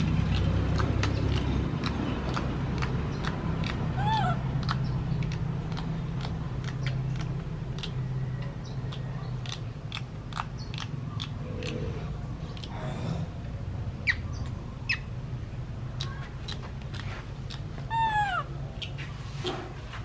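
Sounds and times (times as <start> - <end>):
low steady hum: 0.0 - 20.0
baby monkey squeak: 4.0 - 4.8, 16.9 - 19.0.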